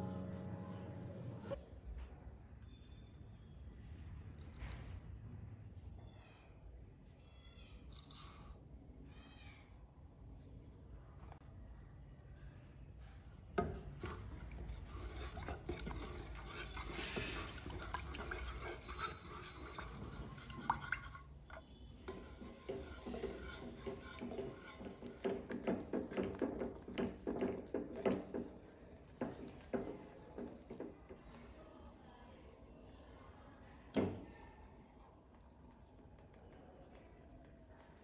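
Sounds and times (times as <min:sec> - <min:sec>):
spatula scraping a saucepan: 0:13.3 - 0:30.9.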